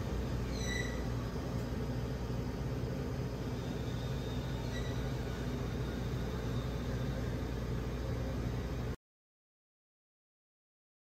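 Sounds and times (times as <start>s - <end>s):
faint high chirp: 3.8s - 5.3s.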